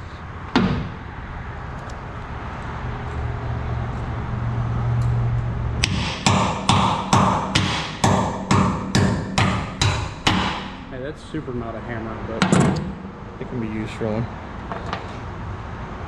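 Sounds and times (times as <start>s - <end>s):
wrench striking metal: 5.8s - 10.9s.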